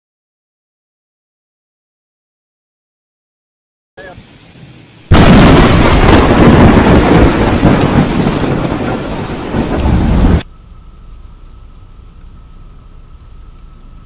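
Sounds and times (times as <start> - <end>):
rain: 4.0 - 14.0
thunder crack and rumble: 5.1 - 10.5
quiet hiss: 10.4 - 14.0.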